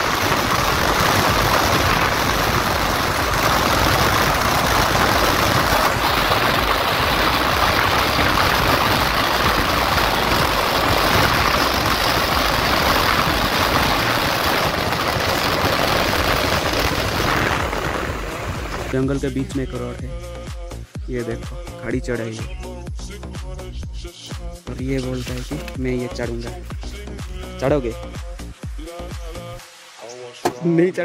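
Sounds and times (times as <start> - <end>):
wind on microphone: 0.0 - 18.9.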